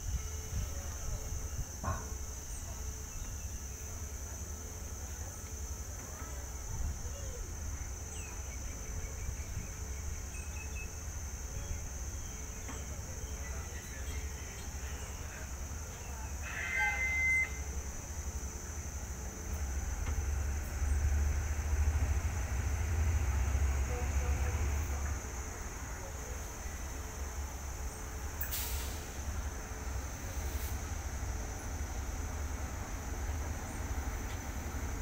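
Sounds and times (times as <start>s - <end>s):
diesel locomotive rumble: 0.0s - 35.0s
high insect drone: 0.0s - 35.0s
bird call: 16.4s - 17.7s.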